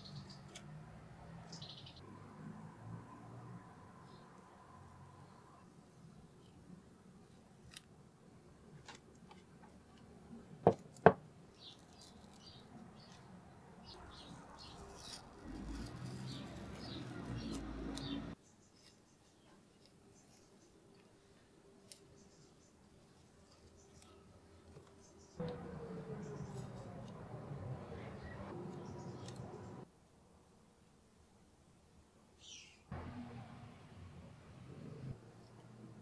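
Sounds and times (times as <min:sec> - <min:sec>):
tape crinkling and rubbing: 0:11.6 - 0:13.3, 0:14.0 - 0:18.2
tape rustling: 0:14.0 - 0:18.2.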